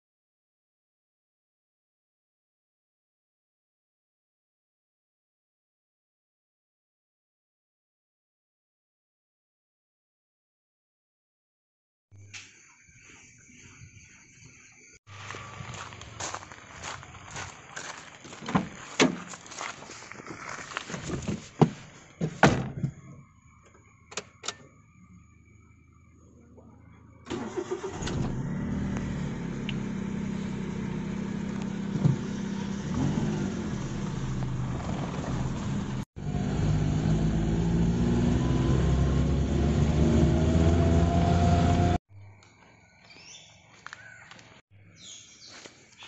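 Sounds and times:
car door opening and shutting: 0:18.4 - 0:19.3, 0:21.0 - 0:23.1, 0:27.3 - 0:29.1, 0:31.8 - 0:32.6
car engine starting and running: 0:26.5 - 0:42.0
car engine revving: 0:27.3 - 0:42.0.

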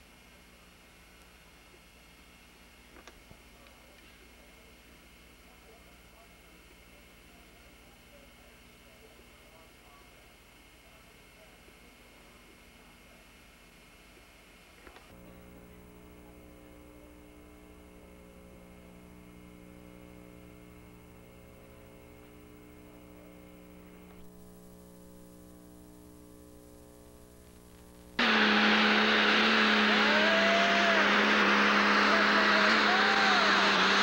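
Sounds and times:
faint steady hum: 0:00.0 - 0:28.2
high engine whine: 0:15.1 - 0:34.0.

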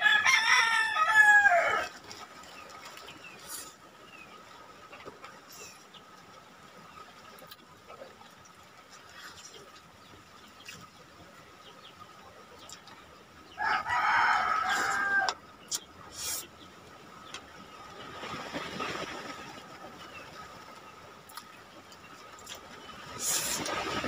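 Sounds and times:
rooster crowing: 0:00.0 - 0:01.9, 0:13.6 - 0:15.4.

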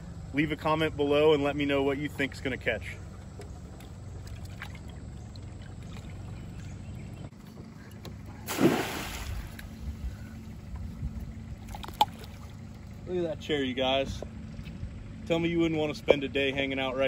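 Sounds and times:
steady low rumble: 0:00.0 - 0:17.0
trap splashing into river: 0:08.4 - 0:09.8, 0:11.6 - 0:12.6.

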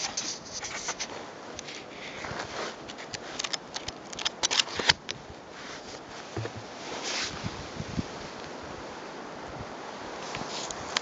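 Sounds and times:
book pages rustling: 0:00.0 - 0:05.0.

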